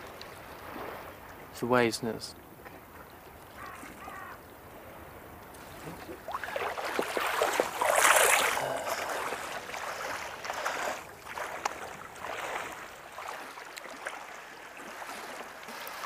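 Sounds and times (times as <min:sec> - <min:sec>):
footsteps splashing in water: 0:05.5 - 0:16.0.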